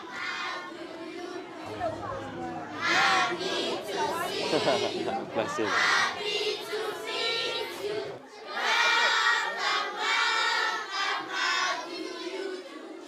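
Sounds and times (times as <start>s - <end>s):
children singing together: 0.0s - 13.0s.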